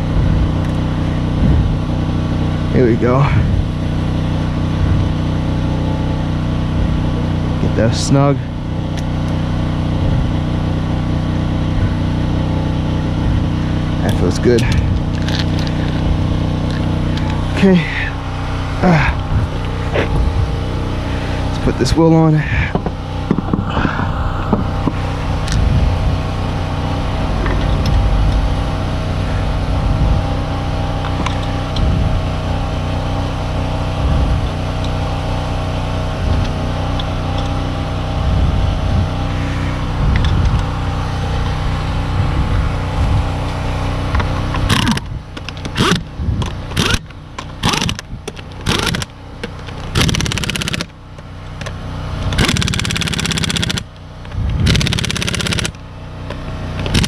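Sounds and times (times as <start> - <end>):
low machine hum: 0.0 - 57.0
impact wrench rattling bursts: 14.0 - 32.4, 44.2 - 55.8, 56.8 - 57.0.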